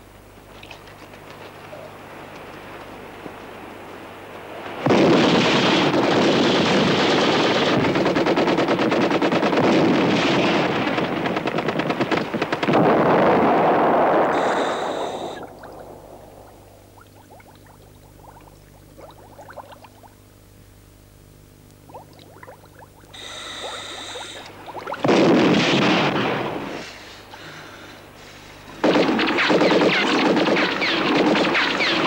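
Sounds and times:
automatic gunfire: 0:04.9 - 0:14.0, 0:28.8 - 0:32.0
underwater bubbling: 0:14.3 - 0:20.5, 0:21.8 - 0:25.0.

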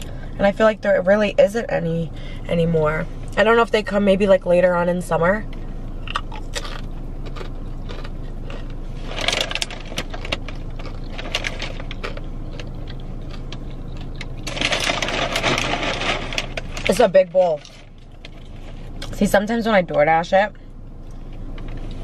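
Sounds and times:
low car cabin hum: 0:00.0 - 0:22.0
person chewing: 0:06.0 - 0:14.6
crinkly bag rustle: 0:09.0 - 0:12.2, 0:14.4 - 0:18.9.

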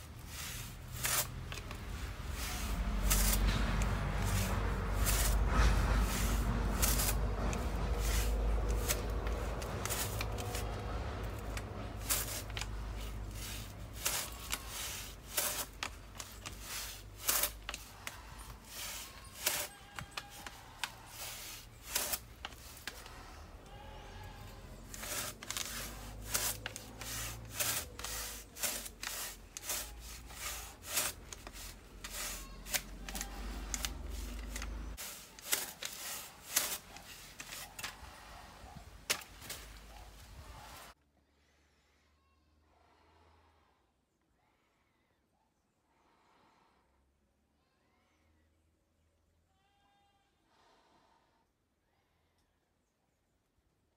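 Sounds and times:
hand saw rasping through wood: 0:00.0 - 0:23.8, 0:24.4 - 0:39.7.

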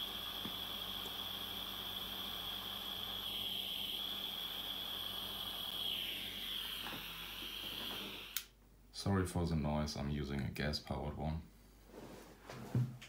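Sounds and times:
gas soldering iron hissing: 0:00.0 - 0:08.5.

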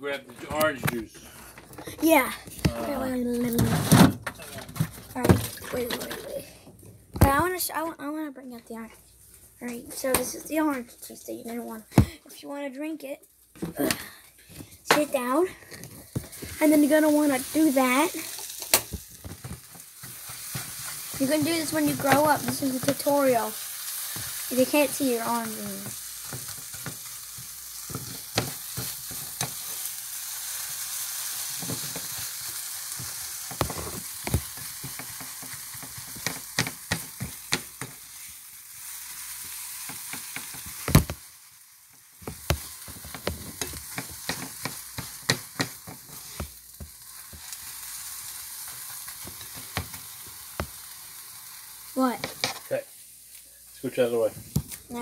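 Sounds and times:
eggs sizzling in a frying pan: 0:08.7 - 0:12.0, 0:12.6 - 0:55.0
spatula scraping pan: 0:19.4 - 0:30.0, 0:42.2 - 0:50.4
spatula tapping pan: 0:25.4 - 0:29.6, 0:33.0 - 0:38.0, 0:42.2 - 0:47.5.

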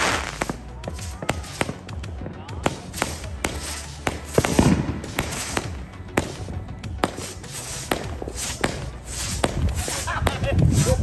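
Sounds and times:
fireworks bangs and pops: 0:00.0 - 0:11.0.

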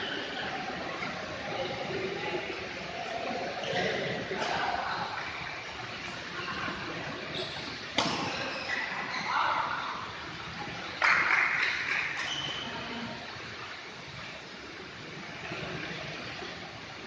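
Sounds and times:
steady background hiss: 0:00.0 - 0:17.0
racket hitting shuttlecock: 0:08.0 - 0:08.4.

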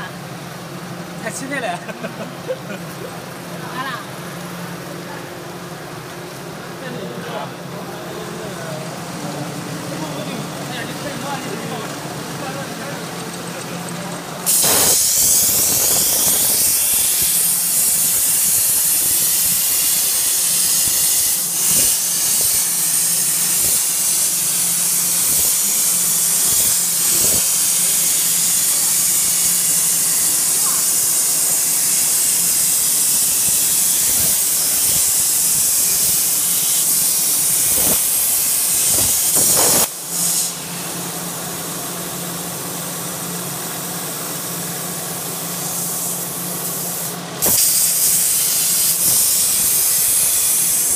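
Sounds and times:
plasma torch hissing: 0:14.3 - 0:41.8, 0:43.7 - 0:50.9.

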